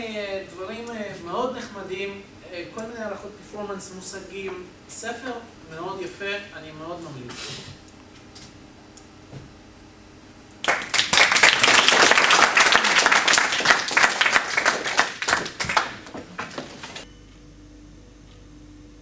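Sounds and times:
audience applauding: 10.6s - 17.0s.

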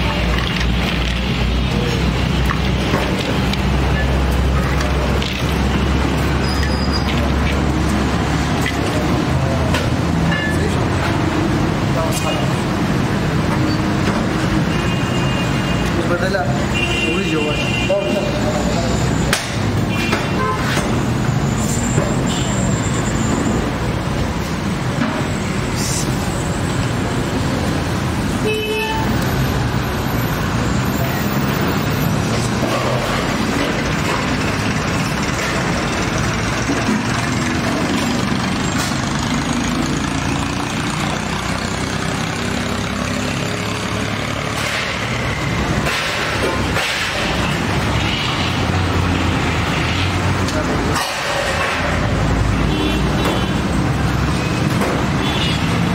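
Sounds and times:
motor vehicles traffic din: 0.0s - 55.9s.

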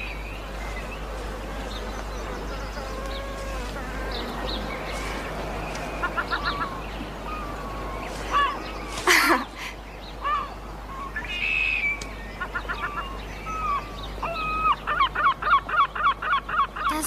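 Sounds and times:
gulls calling: 0.0s - 17.0s.

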